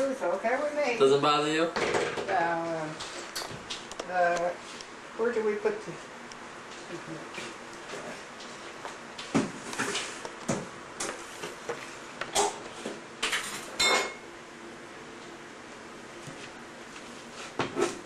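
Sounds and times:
dishes and cutlery clinking: 13.2s - 14.2s.

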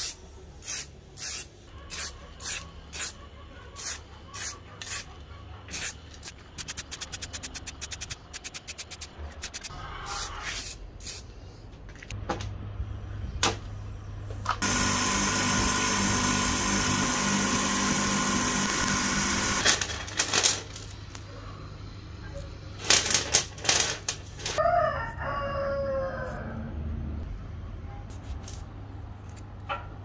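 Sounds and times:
electric power tool running: 14.6s - 19.6s.

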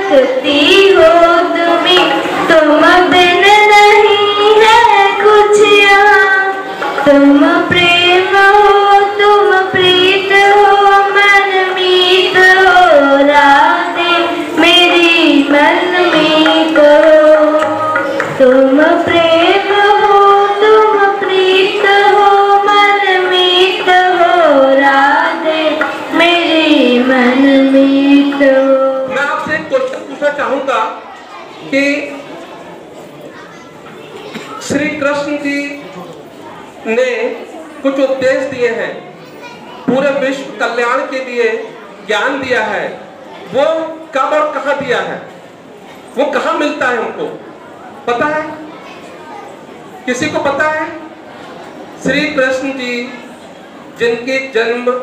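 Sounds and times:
girls singing in unison: 0.0s - 29.0s.

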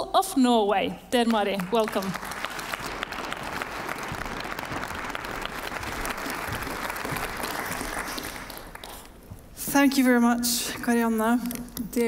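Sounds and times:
audience applauding: 1.6s - 9.2s.

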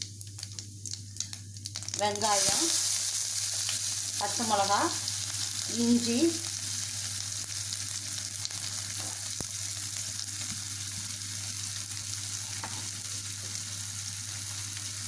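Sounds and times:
vegetables sizzling in hot oil: 0.0s - 15.0s.

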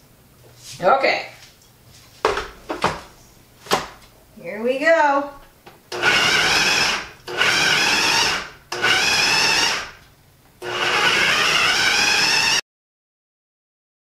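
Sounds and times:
food processor grinding cheese: 6.0s - 10.0s, 10.6s - 12.6s.

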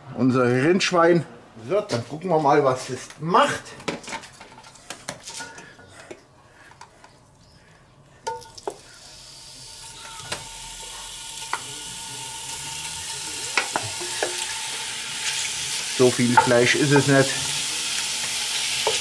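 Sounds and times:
meat sizzling in butter: 8.4s - 19.0s
spoon clinking on steel bowl: 13.6s - 14.5s.

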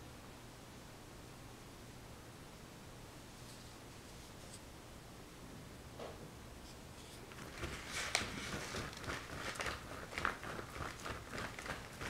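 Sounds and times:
paintbrush swishing on paper: 6.6s - 12.0s.

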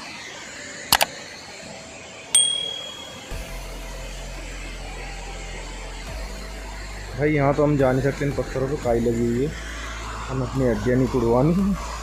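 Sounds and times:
click with high ringing ping: 2.4s - 3.4s.

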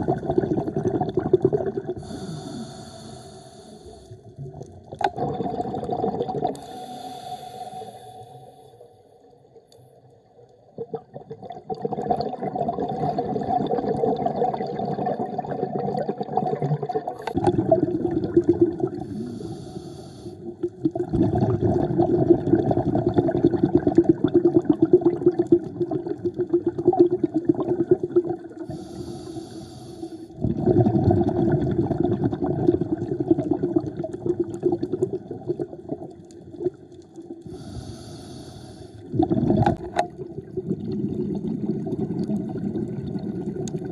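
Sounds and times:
loud bubbling: 0.0s - 2.0s, 5.0s - 6.5s, 10.9s - 19.0s, 20.9s - 28.4s, 30.4s - 36.0s, 39.1s - 43.9s
regulator inhale hiss: 2.0s - 4.2s, 6.6s - 9.0s, 19.0s - 20.6s, 28.6s - 30.4s, 37.5s - 39.1s.

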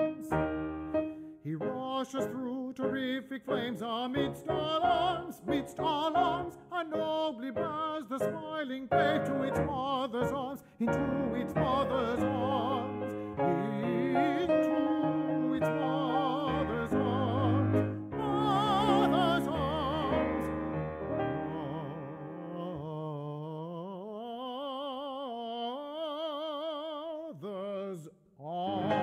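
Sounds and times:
instrumental accompaniment: 0.0s - 1.9s
operatic singing: 0.0s - 29.0s.

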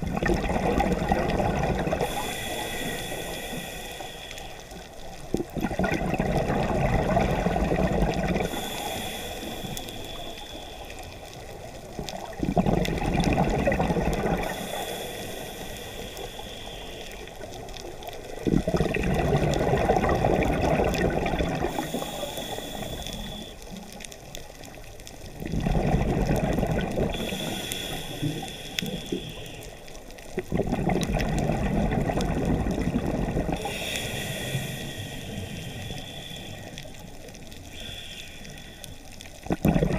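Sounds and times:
exhaled bubbles rushing: 0.0s - 2.2s, 5.3s - 8.6s, 12.0s - 14.6s, 18.4s - 22.1s, 25.4s - 27.3s, 30.4s - 33.7s, 39.4s - 39.9s
regulator inhale hiss: 1.9s - 5.5s, 8.3s - 11.9s, 14.2s - 18.4s, 21.5s - 24.0s, 26.8s - 30.4s, 33.5s - 39.5s.

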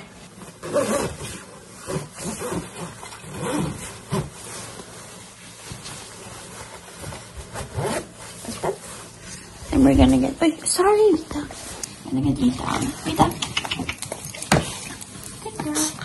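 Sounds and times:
jacket fabric rustling: 0.0s - 10.4s.

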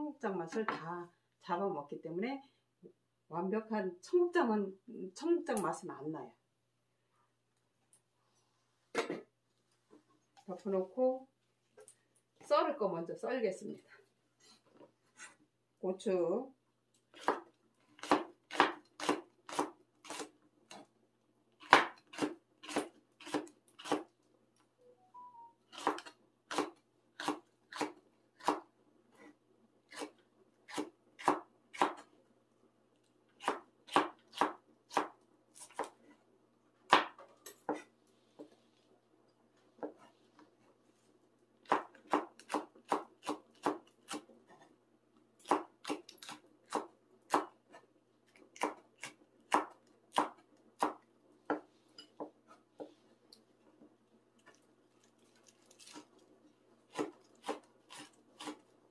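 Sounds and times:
knife chopping on cutting board: 18.0s - 20.3s, 21.6s - 24.0s, 30.7s - 32.0s.

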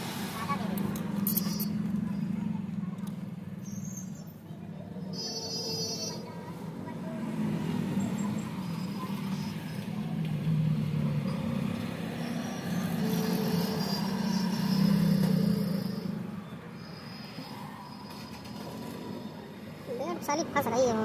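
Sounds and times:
vehicle engine running: 0.0s - 5.0s.

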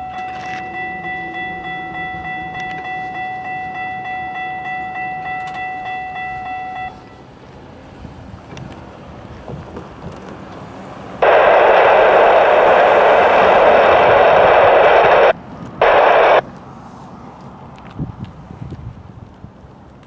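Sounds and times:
radio static hiss: 11.2s - 16.4s.

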